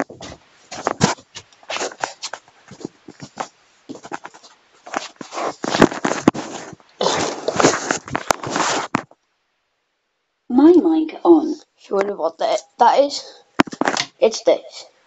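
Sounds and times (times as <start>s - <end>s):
phone handling rustling: 13.6s - 14.1s.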